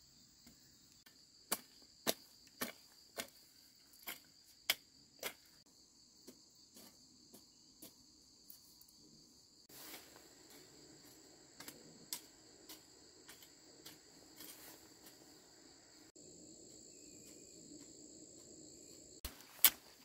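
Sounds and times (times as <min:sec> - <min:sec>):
insects chirring: 0:00.0 - 0:20.0
hoe chopping into soil: 0:19.2 - 0:20.0.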